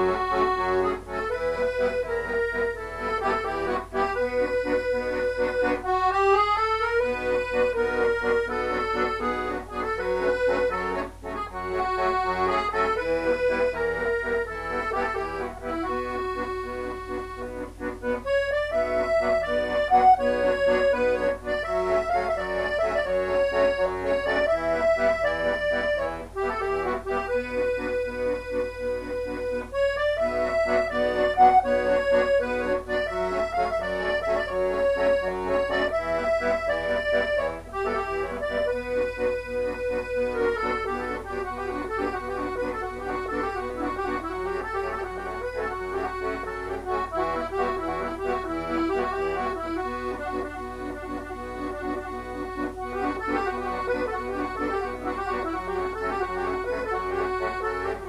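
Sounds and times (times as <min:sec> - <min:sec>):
accordion playing a waltz: 0:00.0 - 0:58.0.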